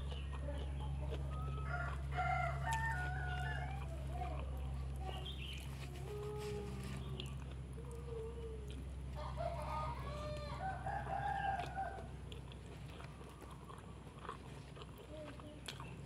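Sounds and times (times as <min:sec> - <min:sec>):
chickens clucking: 0:00.0 - 0:16.0
rooster crowing: 0:01.3 - 0:04.1, 0:09.2 - 0:12.2.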